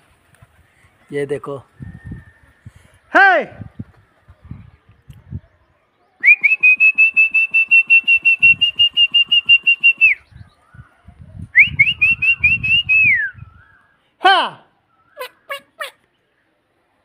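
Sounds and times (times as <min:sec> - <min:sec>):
person whistling: 0:06.2 - 0:10.2, 0:11.6 - 0:13.4.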